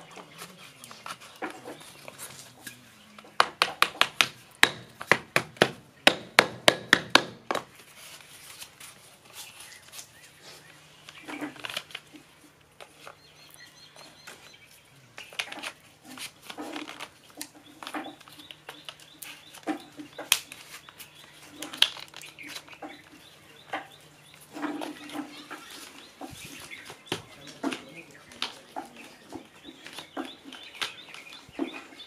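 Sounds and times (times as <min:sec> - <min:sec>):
cardboard tubes knocking: 0:03.2 - 0:07.8.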